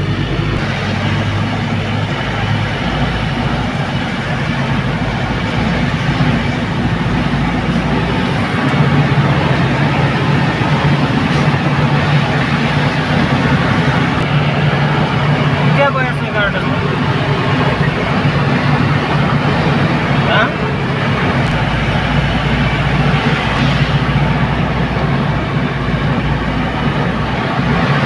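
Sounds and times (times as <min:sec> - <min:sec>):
road noise: 0:00.0 - 0:28.0
truck engine droning: 0:00.0 - 0:28.0.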